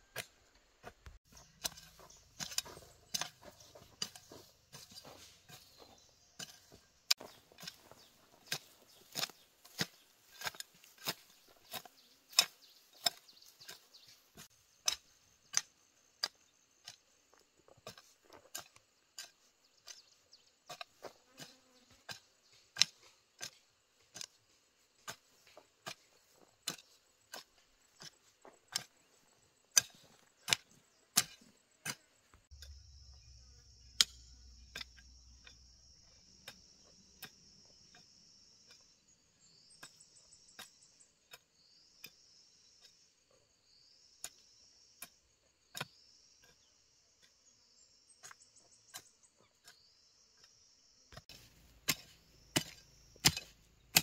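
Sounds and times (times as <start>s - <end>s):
hoe chopping into dry soil: 0.1s - 17.1s, 17.7s - 38.9s, 43.8s - 47.4s, 48.2s - 54.0s.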